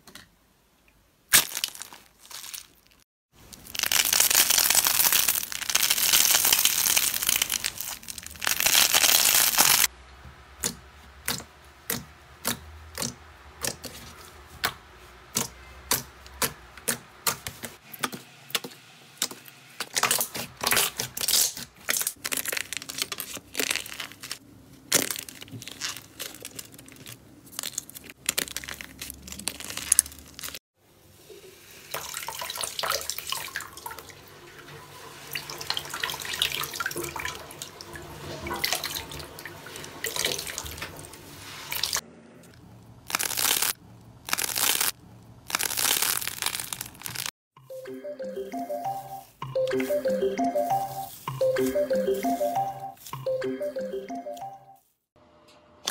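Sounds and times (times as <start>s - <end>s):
foam slime crackling: 1.3s - 9.9s, 19.9s - 30.6s, 43.0s - 47.3s
water hissing in a sink: 31.0s - 42.0s.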